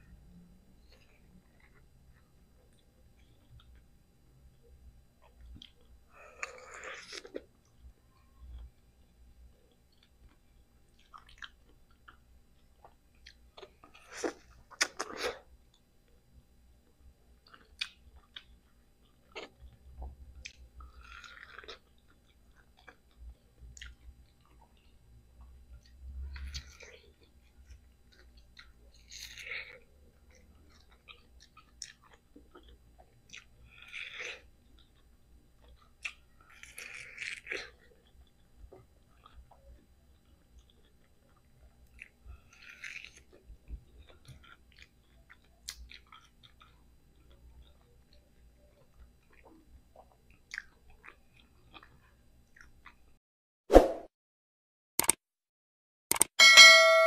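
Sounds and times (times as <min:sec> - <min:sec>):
person biting and chewing mango: 0:05.6 - 0:07.5, 0:09.9 - 0:15.5, 0:17.4 - 0:24.9, 0:25.8 - 0:38.4, 0:39.0 - 0:48.1, 0:48.8 - 0:53.0
wet mouth clicks: 0:14.2 - 0:15.3.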